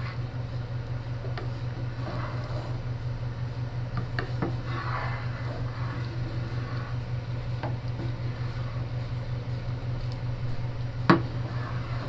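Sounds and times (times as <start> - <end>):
steady low hum: 0.0 - 12.0
spatula swishing in soup: 1.3 - 2.9, 4.1 - 12.0.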